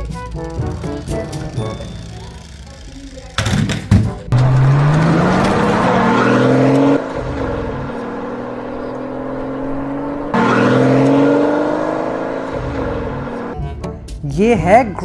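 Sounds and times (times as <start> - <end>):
car engine accelerating: 4.3 - 13.8.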